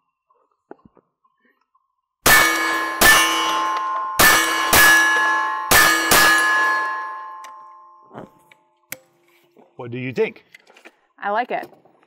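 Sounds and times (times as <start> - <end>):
steel target ringing: 2.2 - 8.1.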